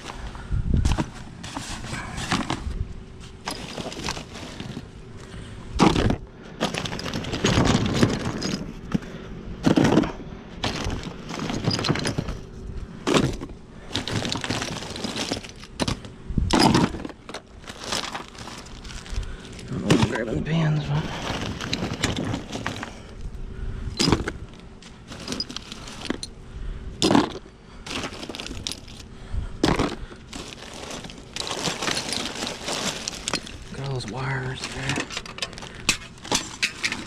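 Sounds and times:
plastic bags rustling: 0.0s - 8.9s, 10.6s - 23.3s, 24.0s - 26.3s, 27.0s - 37.0s
shotgun shells clattering: 29.7s - 34.0s.

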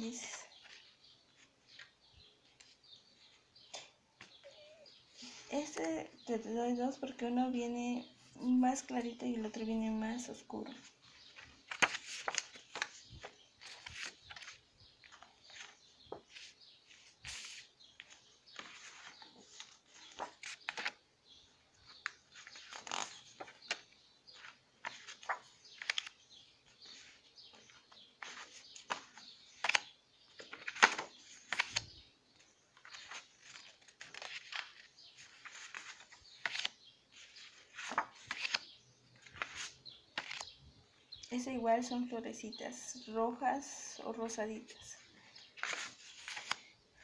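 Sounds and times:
card paper rustling: 10.7s - 21.0s, 21.8s - 40.5s, 45.5s - 46.7s.

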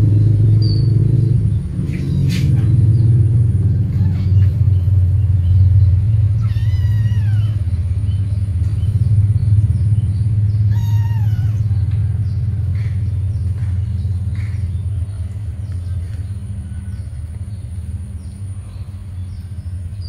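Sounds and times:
steady low rumble: 0.0s - 20.0s
cat meowing: 6.3s - 7.7s, 10.7s - 11.7s.

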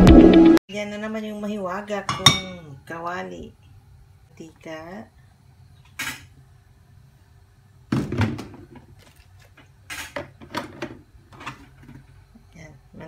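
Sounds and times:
faint steady hum: 0.7s - 13.0s
cookware knocking and clunking: 2.0s - 2.6s.

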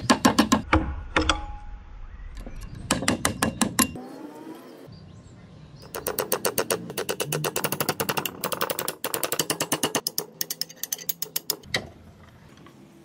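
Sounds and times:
chisel striking metal rapidly: 0.0s - 1.4s, 2.9s - 4.0s, 5.9s - 11.7s.

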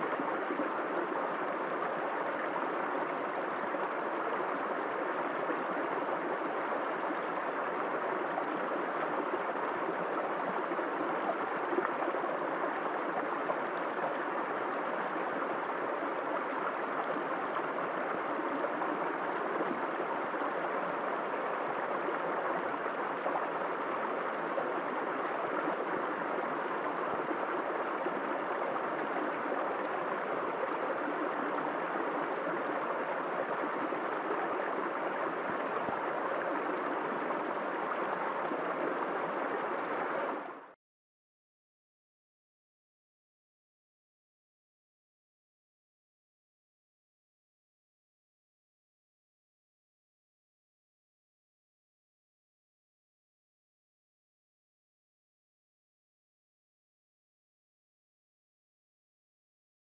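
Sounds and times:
creek flowing over stones: 0.0s - 40.8s.

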